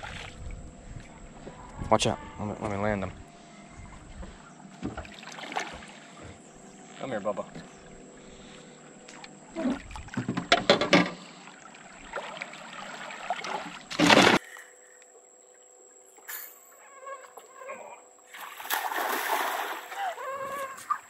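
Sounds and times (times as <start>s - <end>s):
fish thrashing and splashing: 18.4s - 20.0s.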